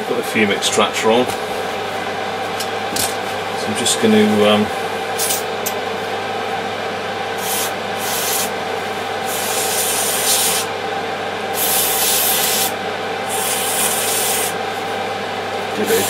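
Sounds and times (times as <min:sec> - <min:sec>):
extractor fan humming: 0:00.0 - 0:16.0
aerosol spray hissing bursts: 0:09.3 - 0:10.7, 0:11.6 - 0:12.7, 0:13.3 - 0:14.5.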